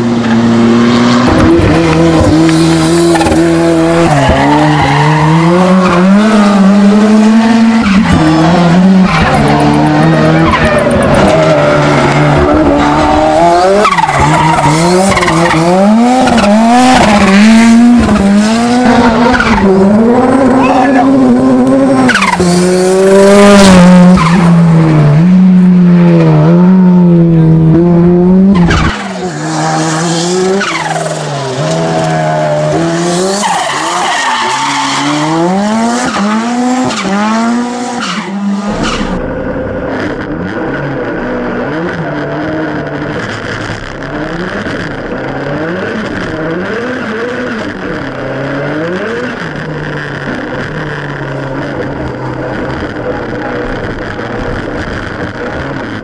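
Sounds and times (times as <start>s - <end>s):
car engine revving: 0.0s - 56.0s
tyre squeal: 20.4s - 21.2s.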